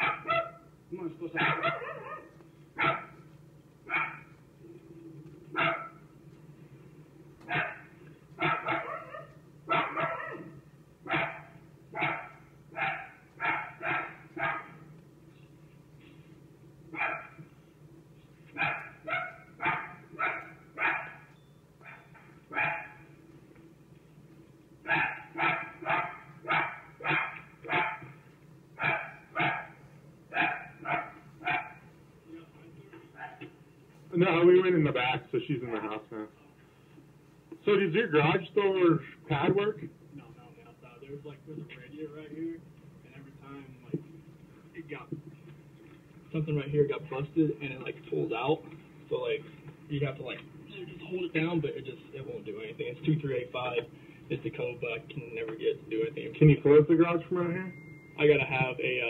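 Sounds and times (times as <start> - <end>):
dog barking: 0.0 - 0.7, 1.4 - 3.2, 3.9 - 4.3, 5.5 - 6.0, 7.5 - 14.8, 16.9 - 17.4, 18.5 - 23.1, 24.9 - 28.2, 28.8 - 31.9, 33.1 - 33.5
steady low hum: 0.0 - 59.0.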